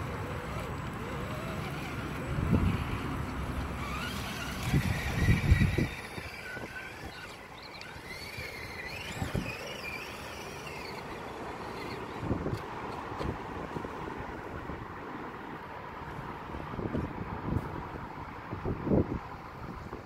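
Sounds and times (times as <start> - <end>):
electric motor and gears whining: 0.0 - 13.9
wind buffeting microphone: 1.1 - 11.0, 12.0 - 13.9, 16.2 - 20.0.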